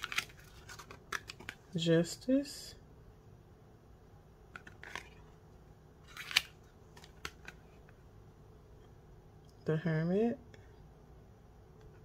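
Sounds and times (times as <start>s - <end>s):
cards clicking: 0.0s - 1.6s, 6.1s - 7.6s.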